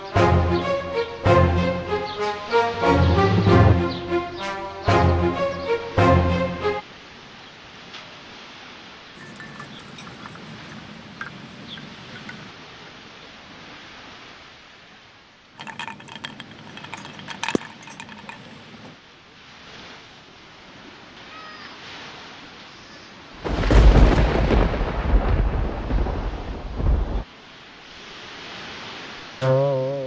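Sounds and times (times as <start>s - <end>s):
thunder rumbling: 2.8s - 4.1s, 23.4s - 27.2s.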